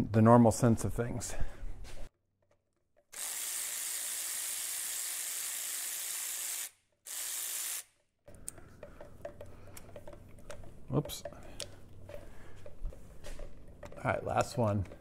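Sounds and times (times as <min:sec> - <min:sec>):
electric ratchet spinning: 0:03.1 - 0:08.0
handling clatter: 0:08.6 - 0:15.0.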